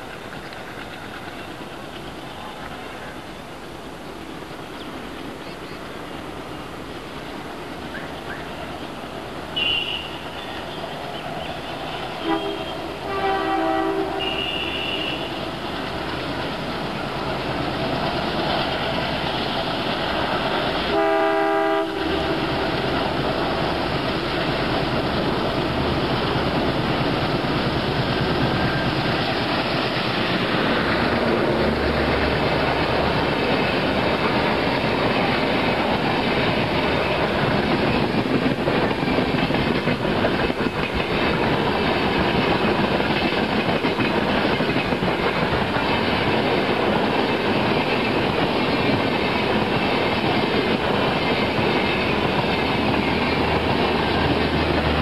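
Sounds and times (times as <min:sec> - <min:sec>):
diesel locomotive working hard: 0:00.0 - 0:55.0
wheels clattering over rail joints: 0:22.3 - 0:55.0.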